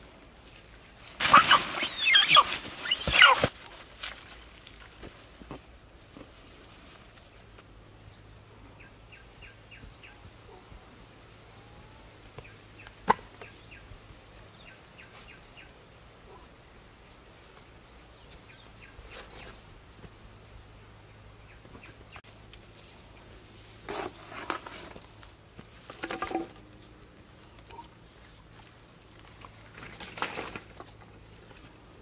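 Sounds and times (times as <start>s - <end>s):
faint high chirping calls: 1.3s - 3.5s.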